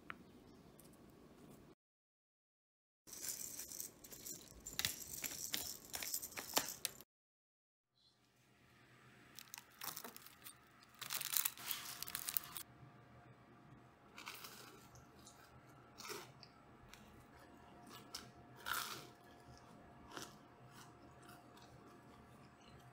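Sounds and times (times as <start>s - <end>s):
faint steady hum: 8.0s - 22.9s.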